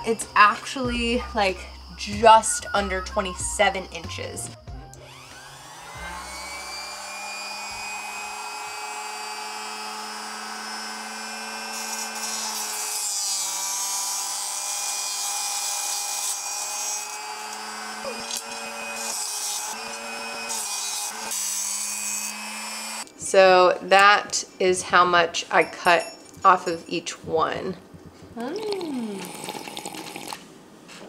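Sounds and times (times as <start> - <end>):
saw motor whine: 0.0 - 23.2
cut-off wheel grinding shafts: 4.9 - 23.2.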